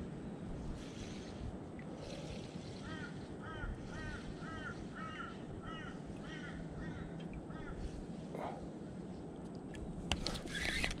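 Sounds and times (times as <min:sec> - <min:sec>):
low background noise: 0:00.0 - 0:11.0
bird calling: 0:02.0 - 0:07.9.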